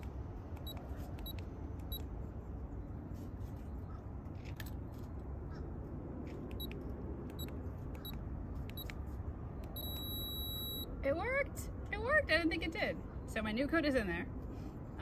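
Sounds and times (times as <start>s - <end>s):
short high electronic beeps: 9.8s - 10.9s.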